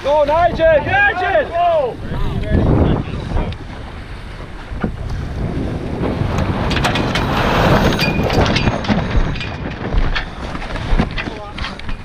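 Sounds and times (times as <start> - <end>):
wind buffeting microphone: 0.0 - 12.0
boat gear clicking and rattling: 6.3 - 12.0.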